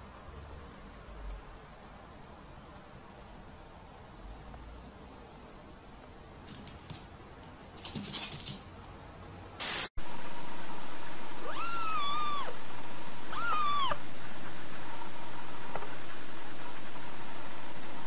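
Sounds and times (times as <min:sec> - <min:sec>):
steady hiss: 0:00.0 - 0:09.9
short burst of noise: 0:09.6 - 0:11.6
cat meowing: 0:11.4 - 0:12.5, 0:13.3 - 0:14.0.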